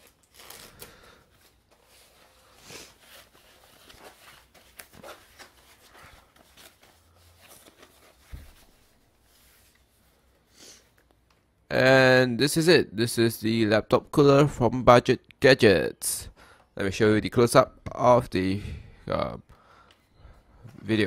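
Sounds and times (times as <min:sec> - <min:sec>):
foam packing wrap crinkling: 0:00.0 - 0:09.0.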